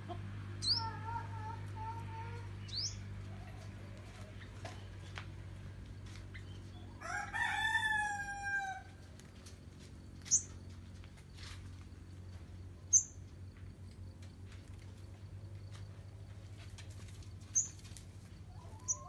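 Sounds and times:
sharp high bird chirps: 0.6 - 0.9, 2.6 - 3.0, 10.3 - 10.5, 12.9 - 13.2, 17.6 - 17.8
rooster crowing: 6.9 - 9.0.

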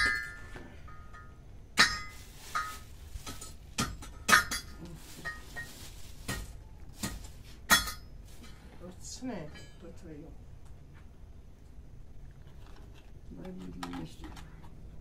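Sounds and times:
plastic bag rustling: 1.8 - 8.6.

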